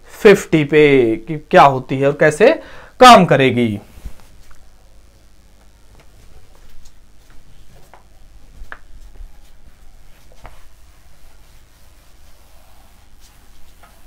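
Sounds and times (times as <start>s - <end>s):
low room hum: 0.0s - 14.0s
writing on a board: 10.2s - 14.0s.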